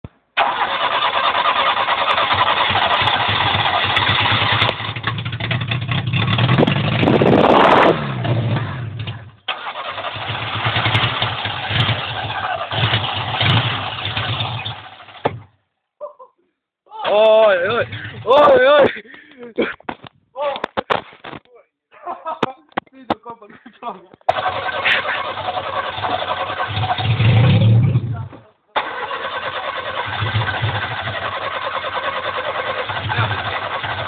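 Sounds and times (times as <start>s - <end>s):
car engine running and revving: 3.0s - 9.3s, 10.4s - 15.2s, 25.6s - 28.1s.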